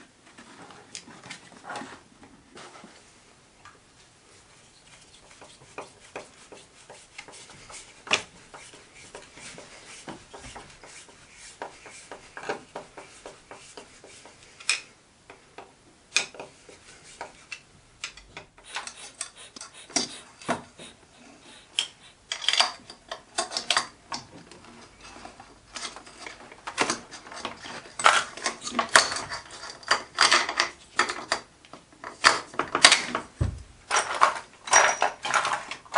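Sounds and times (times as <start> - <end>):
screwdriver turning screws: 18.6 - 20.6.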